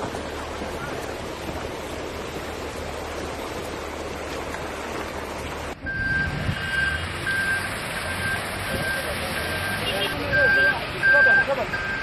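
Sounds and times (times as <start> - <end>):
car ploughing through water: 0.0 - 12.0
low engine rumble: 0.0 - 12.0
reversing alarm beeping: 5.8 - 12.0.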